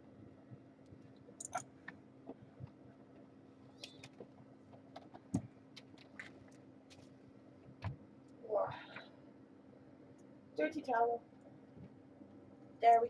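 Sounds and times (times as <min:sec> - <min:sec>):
steady low hum: 0:00.0 - 0:13.0
small clicks: 0:01.3 - 0:02.0.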